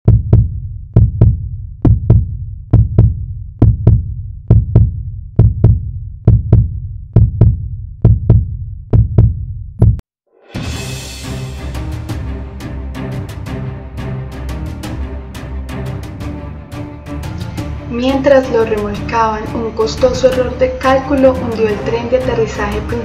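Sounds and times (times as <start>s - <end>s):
heartbeat thumps: 0.0s - 10.0s.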